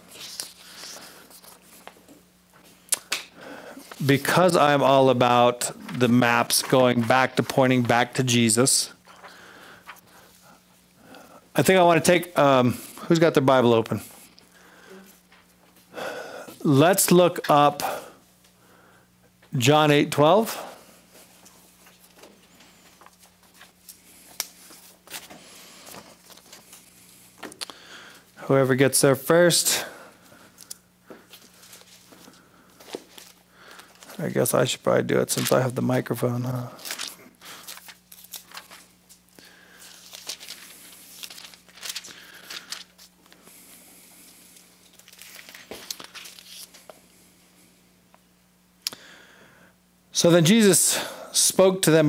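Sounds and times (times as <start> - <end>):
low room hum: 0.0 - 52.0
paper pages rustling: 0.1 - 2.0, 21.3 - 27.5, 30.6 - 34.2, 35.3 - 35.8, 36.7 - 43.4, 44.8 - 46.9.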